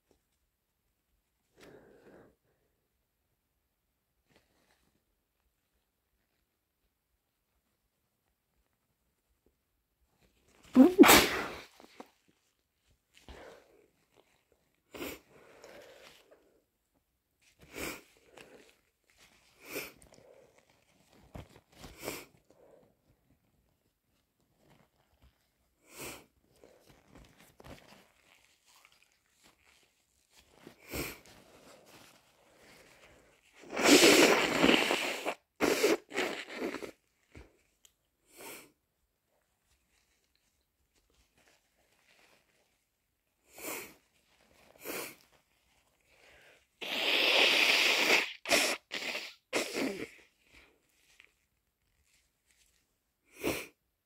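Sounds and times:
loud sneeze: 10.7 - 12.0, 33.6 - 37.0, 46.8 - 50.3
person sniffling: 10.7 - 12.1, 30.8 - 31.8, 44.8 - 45.2, 46.2 - 50.7, 53.3 - 53.8
nose blowing: 10.8 - 11.9, 33.6 - 37.0, 46.8 - 50.3.

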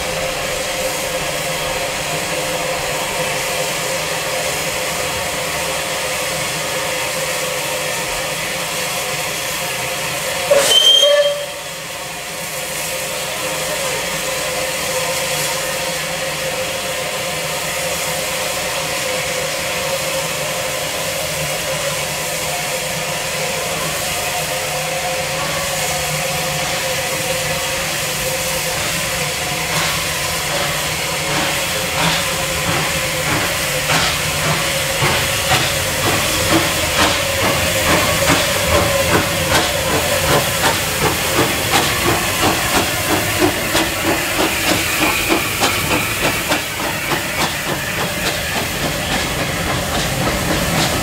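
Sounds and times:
steam locomotive hissing: 0.0 - 51.0
short rising steam whistle: 10.3 - 12.2.

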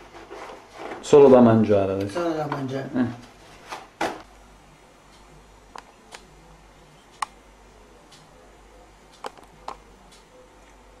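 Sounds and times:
low steady hum: 1.6 - 11.0.

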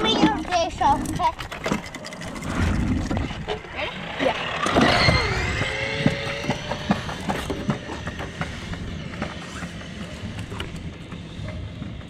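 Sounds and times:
small rattles and clicks: 0.0 - 3.4.

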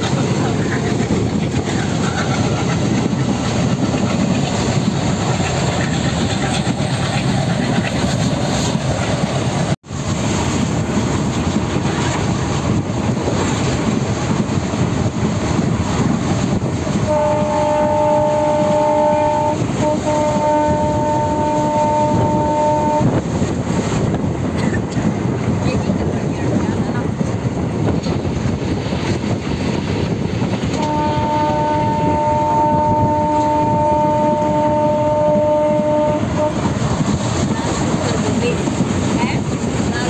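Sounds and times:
train rumble and wheel clatter: 0.0 - 40.0
train horn blasts: 17.0 - 23.2, 30.7 - 36.8.

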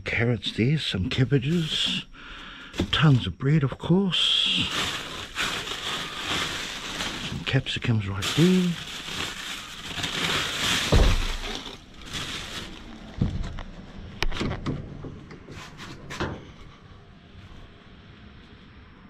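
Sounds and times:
bags rustling: 4.4 - 13.5
dull thuds: 9.9 - 12.6.

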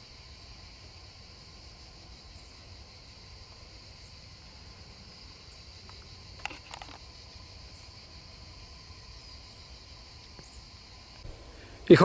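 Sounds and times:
insect drone: 0.0 - 12.0
clicks and rustles: 5.9 - 7.1.

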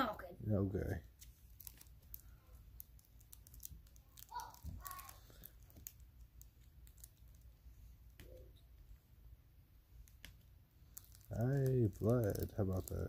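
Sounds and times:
soft voice: 11.3 - 13.0.

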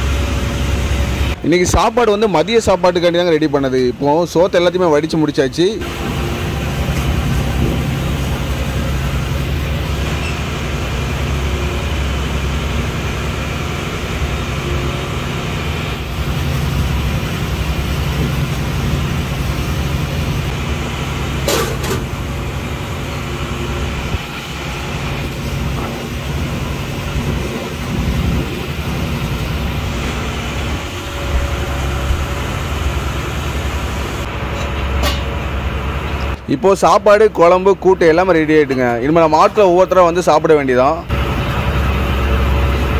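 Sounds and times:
boat engine droning: 0.0 - 42.9.

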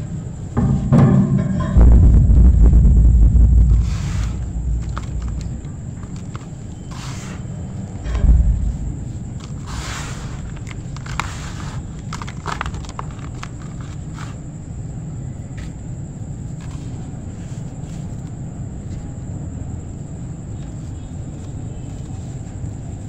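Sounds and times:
faint high whine: 0.0 - 12.2
steady low rumble: 0.0 - 13.1.

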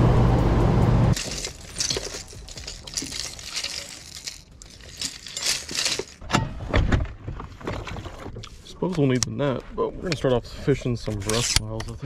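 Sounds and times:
fishing lures clinking: 1.2 - 6.2.

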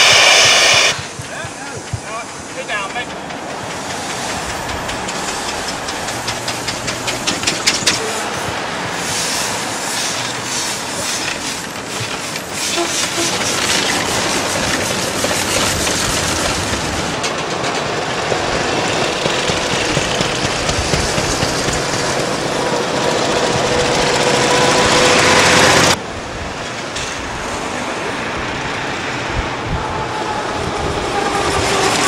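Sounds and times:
steam engine exhaust chuffing: 0.0 - 8.0
steam hissing: 0.0 - 26.0.

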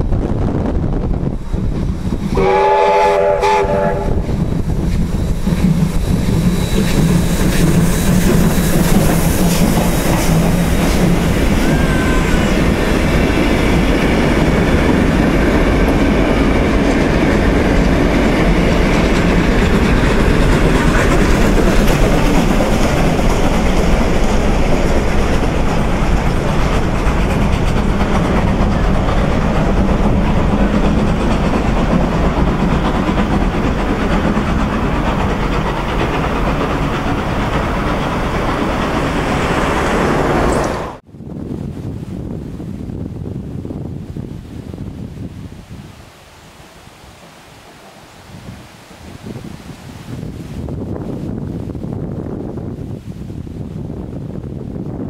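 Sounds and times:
steam locomotive exhaust: 1.0 - 41.0
steam whistle blast: 2.3 - 4.3
train wheels clicking over rail joints: 3.2 - 11.9, 12.6 - 41.0.

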